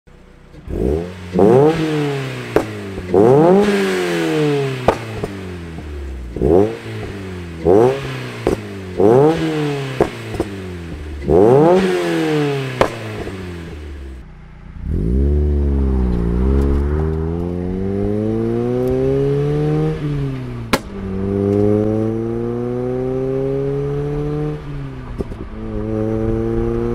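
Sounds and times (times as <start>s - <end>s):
car engine accelerating: 0.1s - 26.9s
car engine revving: 0.1s - 26.9s
exhaust pops and crackles: 2.4s - 3.8s, 4.8s - 9.2s, 9.9s - 11.9s, 12.7s - 13.4s, 16.0s - 17.8s, 20.4s - 21.7s, 25.0s - 25.8s.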